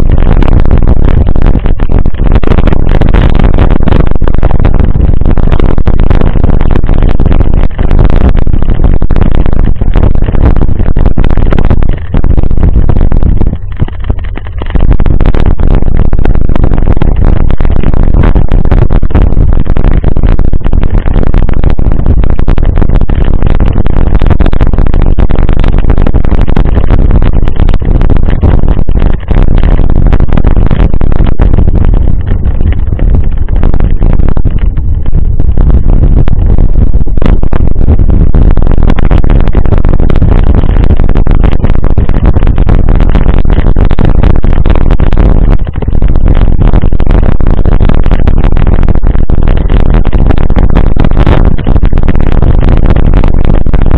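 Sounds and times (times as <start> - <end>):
wind buffeting microphone: 19.9 - 46.0.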